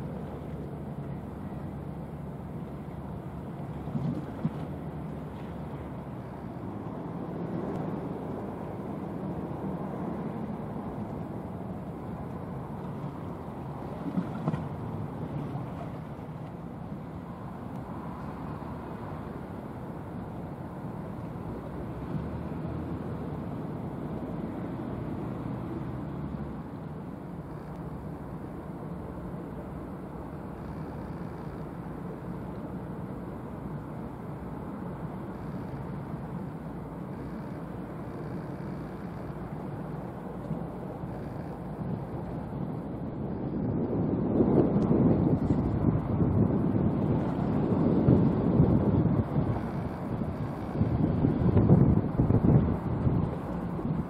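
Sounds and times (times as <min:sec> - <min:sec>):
low engine rumble: 0:00.0 - 0:54.0.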